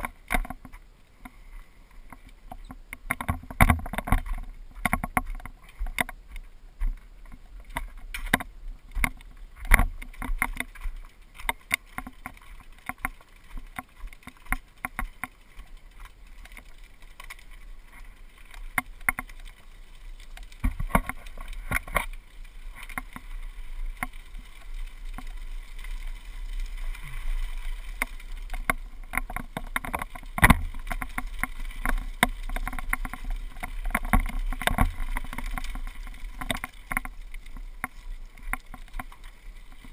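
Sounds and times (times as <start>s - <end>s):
bike rumble on gravel: 0.0s - 39.9s
camera rattling in mount: 2.5s - 6.2s, 27.9s - 39.2s.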